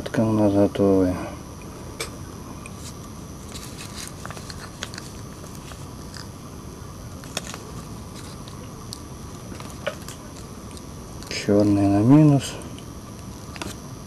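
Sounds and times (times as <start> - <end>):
hands handling circuit board: 2.8 - 6.3.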